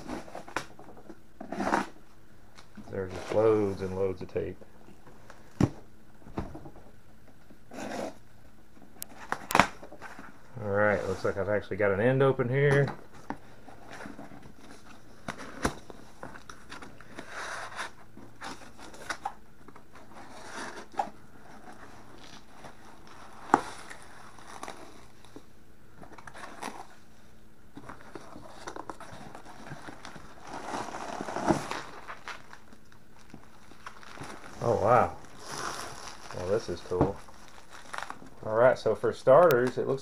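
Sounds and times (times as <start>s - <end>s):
cardboard scraping and tearing: 1.4s - 2.0s, 7.7s - 8.2s, 20.0s - 25.2s, 27.9s - 32.6s, 33.7s - 38.2s
bubble wrap crinkling: 20.0s - 25.4s, 27.9s - 38.5s
shredded paper rustling: 33.2s - 38.2s.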